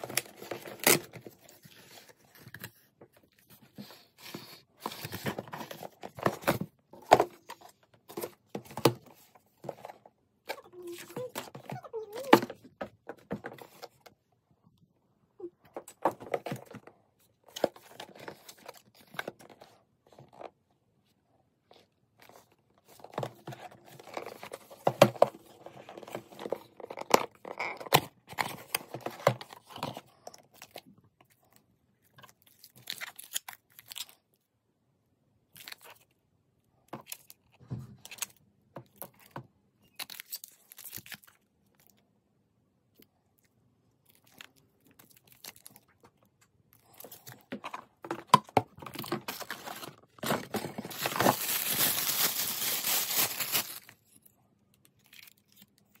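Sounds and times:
cardboard and plastic rustling: 0.0s - 14.2s, 15.7s - 20.6s, 21.7s - 31.4s, 44.1s - 54.2s.

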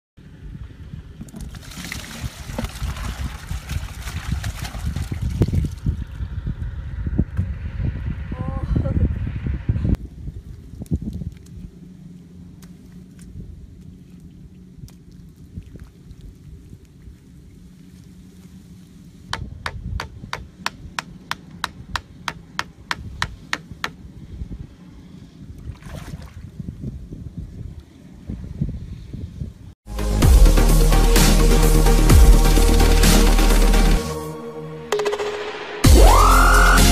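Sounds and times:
wind rumble on microphone: 0.2s - 29.8s
water pouring into plastic bucket: 1.4s - 5.7s
hatchet knocking on bamboo stake: 19.3s - 24.0s.

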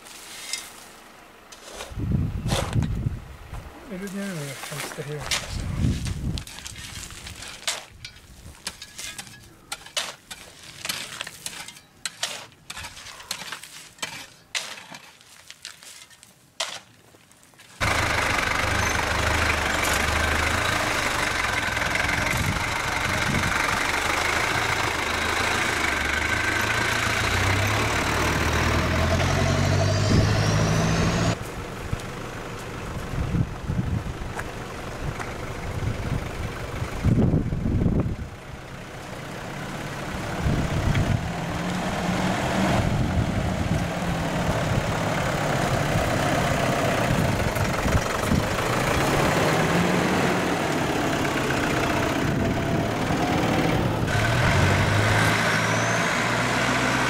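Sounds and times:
off-road vehicle engine running: 17.8s - 57.0s.

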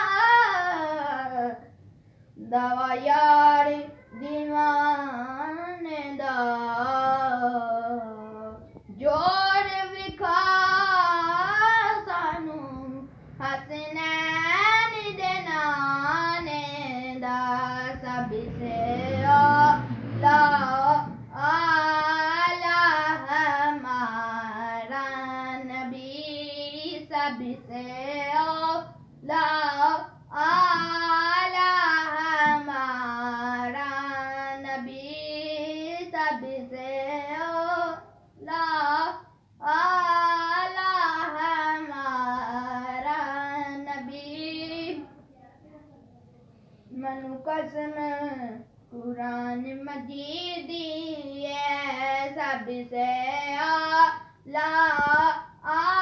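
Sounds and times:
boy singing unaccompanied: 0.0s - 1.8s, 2.4s - 45.3s, 46.8s - 56.0s.

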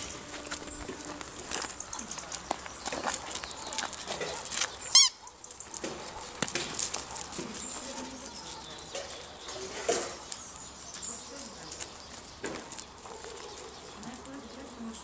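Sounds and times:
footsteps crunching on gravel: 0.0s - 15.0s
squeaky toy ball squeak: 4.9s - 5.2s.

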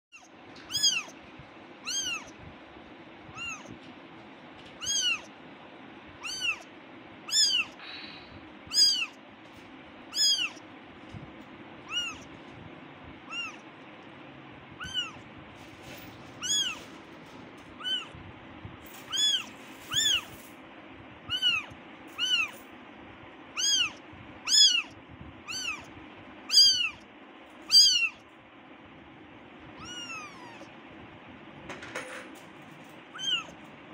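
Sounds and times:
kitten meowing: 0.1s - 1.2s, 1.8s - 2.4s, 3.3s - 3.8s, 4.8s - 5.3s, 6.2s - 6.7s, 7.3s - 7.8s, 8.7s - 9.2s, 10.1s - 10.6s, 11.8s - 12.3s, 13.2s - 13.6s, 14.8s - 15.2s, 16.4s - 16.9s, 17.8s - 18.2s, 19.1s - 20.3s, 21.3s - 22.6s, 23.5s - 25.9s, 26.5s - 27.0s, 27.7s - 28.2s, 29.8s - 30.7s, 33.1s - 33.6s.

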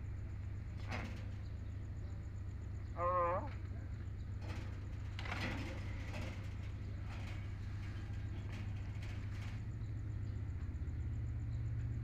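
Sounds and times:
low mechanical hum: 0.0s - 12.0s.

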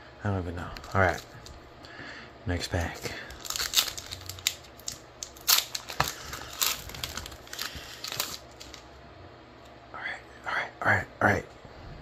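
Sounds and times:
foil wrapper tearing and crinkling: 2.9s - 8.8s.

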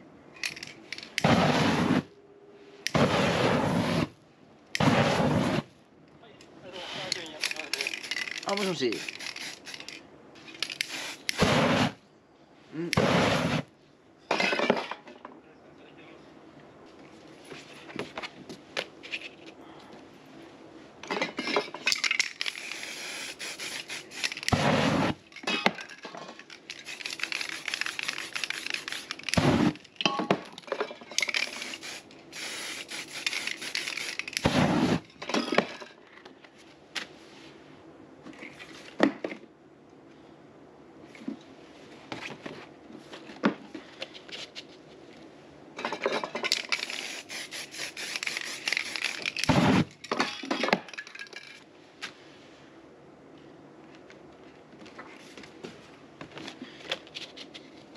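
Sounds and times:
spray paint cans hissing: 2.9s - 4.1s, 7.2s - 12.0s, 21.9s - 30.0s, 31.2s - 35.1s, 46.5s - 50.0s.

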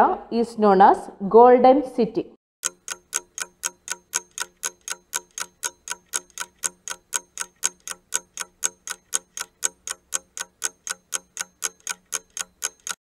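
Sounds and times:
clock ticking: 2.6s - 13.0s.

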